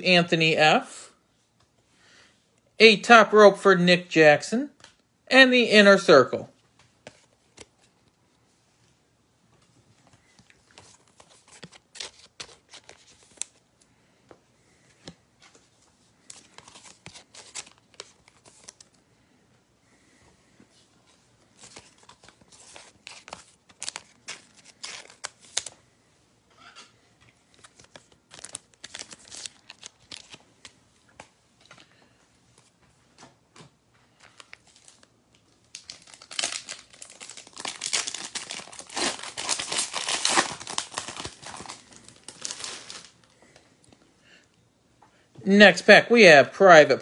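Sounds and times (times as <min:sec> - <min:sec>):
plastic wrappers crinkling: 0:10.2 - 0:13.6, 0:16.2 - 0:19.0, 0:21.4 - 0:25.8, 0:27.5 - 0:30.8, 0:34.1 - 0:44.0.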